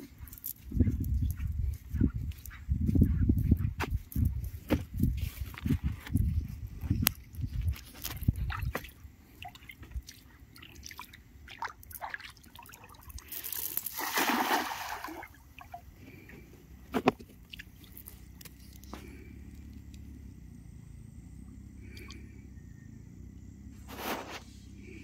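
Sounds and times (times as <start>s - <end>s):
net splashing into water: 10.7s - 15.8s
small rustles and clicks: 16.9s - 20.1s.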